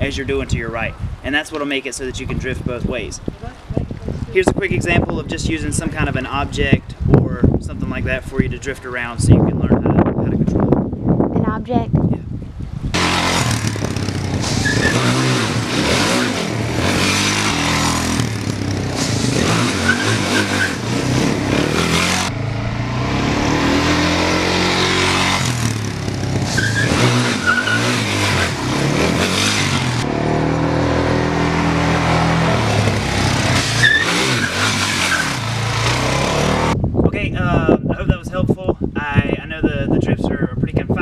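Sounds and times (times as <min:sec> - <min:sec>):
motorcycle engine revving: 0:12.9 - 0:36.8.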